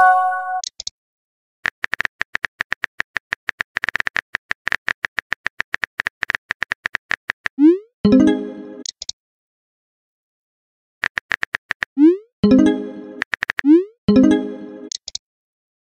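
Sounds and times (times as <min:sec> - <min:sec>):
phone keyboard clicks: 0:11.0 - 0:11.9.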